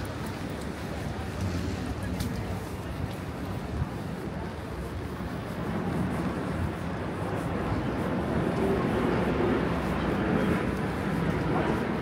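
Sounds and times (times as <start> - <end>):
passing engines: 0.0 - 3.6.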